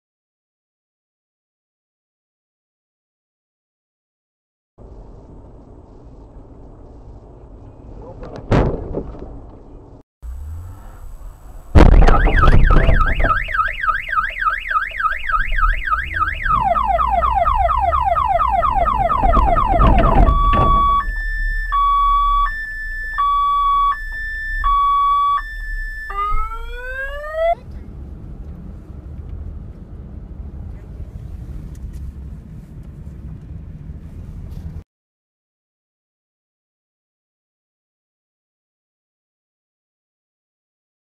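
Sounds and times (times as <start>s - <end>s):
car alarm siren: 11.8s - 27.6s.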